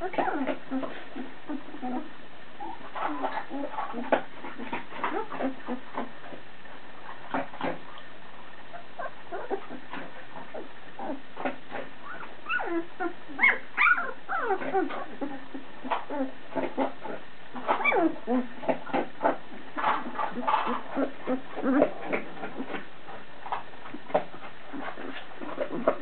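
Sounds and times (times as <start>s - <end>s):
puppies whimpering and squeaking: 0.0s - 5.9s, 8.7s - 19.4s.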